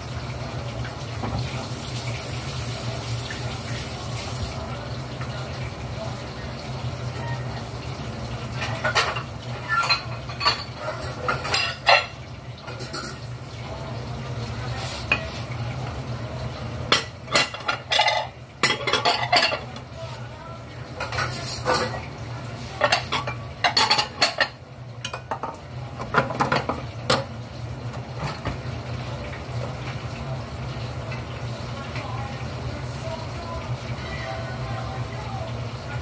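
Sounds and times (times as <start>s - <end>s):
dishes and cutlery clattering: 8.5s - 13.3s, 16.9s - 19.9s, 21.0s - 22.1s, 22.7s - 27.3s.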